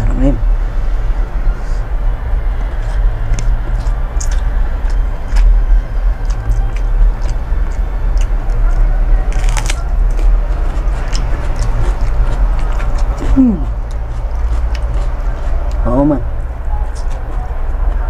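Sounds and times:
low rumble: 0.0 - 18.0
person chewing food: 2.4 - 15.8
food crunch: 2.7 - 15.8.

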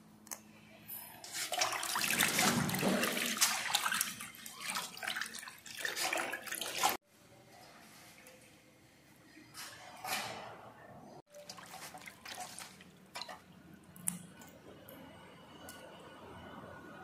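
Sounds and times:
water splashing in metal basin: 1.3 - 7.0, 11.3 - 13.5.

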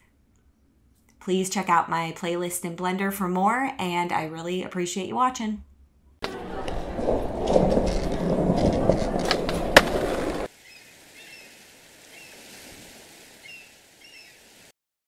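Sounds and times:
skateboard wheels rolling: 6.2 - 10.5.

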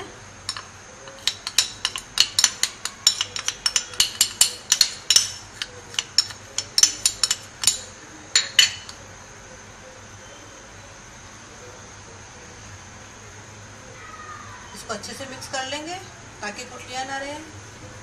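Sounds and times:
metal spoon clinking on plate: 0.5 - 9.0.

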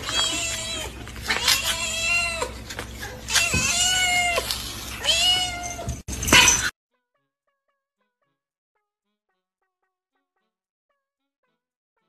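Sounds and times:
cat meowing: 0.0 - 6.6.

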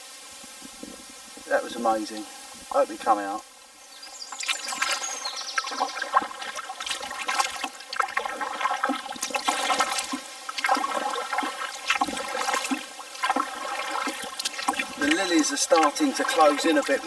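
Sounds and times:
paddle splashing water: 4.0 - 17.0.

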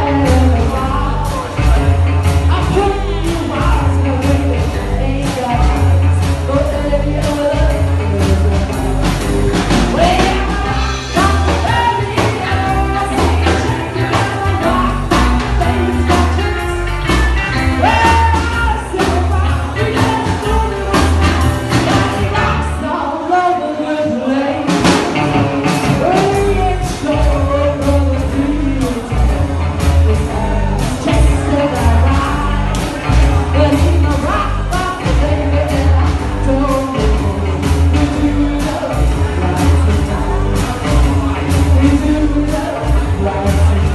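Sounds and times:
rock and roll band playing: 0.0 - 43.9
woman singing: 0.0 - 43.9.

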